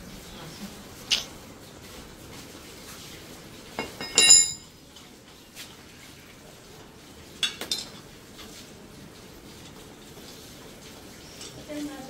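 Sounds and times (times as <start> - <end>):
spanner clinking on metal: 3.8 - 4.7.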